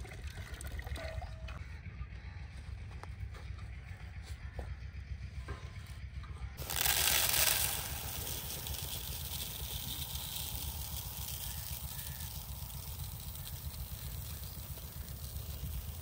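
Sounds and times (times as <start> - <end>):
rice pouring into plastic bowl: 6.6 - 16.0.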